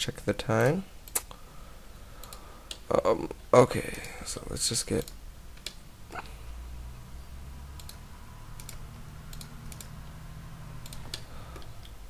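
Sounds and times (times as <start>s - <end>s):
low steady hum: 0.0s - 12.0s
keyboard and mouse clicks: 0.6s - 1.4s, 2.2s - 2.9s, 4.9s - 5.8s, 7.8s - 10.2s, 10.8s - 12.0s.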